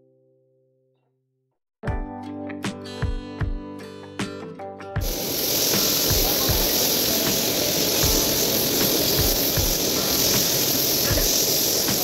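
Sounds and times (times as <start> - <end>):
vegetables sizzling in a wok: 5.0 - 12.0.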